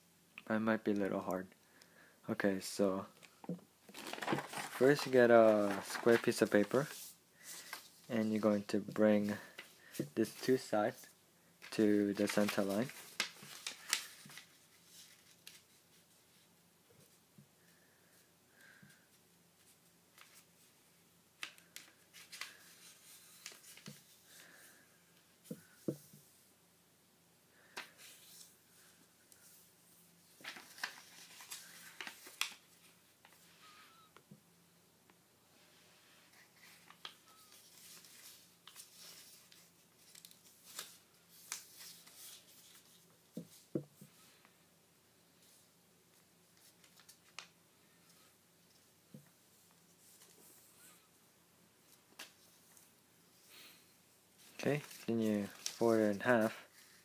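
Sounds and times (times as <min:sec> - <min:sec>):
paper crackling as creased: 0:03.9 - 0:08.0, 0:30.4 - 0:32.6
paper rustling: 0:03.9 - 0:16.2, 0:21.4 - 0:24.7, 0:30.4 - 0:33.4, 0:36.3 - 0:43.7, 0:45.4 - 0:47.5, 0:54.4 - 0:57.0.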